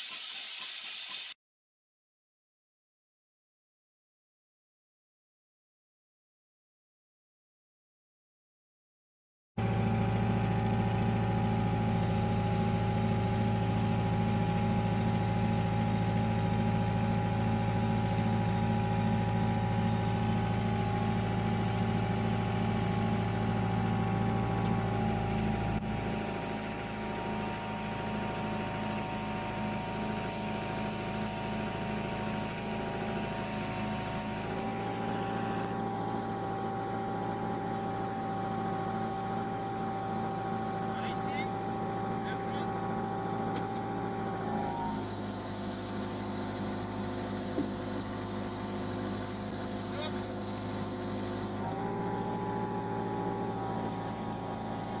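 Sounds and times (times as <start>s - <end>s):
crane motor whine: 9.6s - 55.0s
low motor hum: 9.6s - 55.0s.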